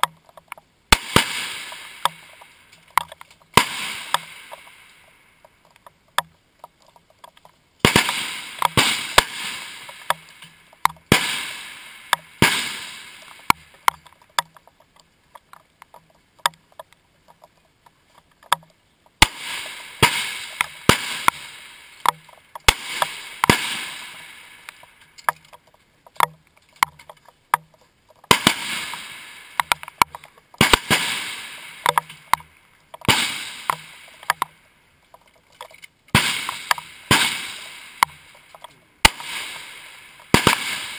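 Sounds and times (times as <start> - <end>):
rifle shots echoing: 0.9 - 2.5, 3.5 - 5.1, 7.8 - 13.9, 19.2 - 24.9, 28.3 - 32.4, 33.0 - 34.4, 36.1 - 38.4, 39.0 - 40.9
fainter distant gunshot cracks: 7.8 - 10.1, 11.1 - 13.5, 36.2 - 38.1, 39.1 - 40.9.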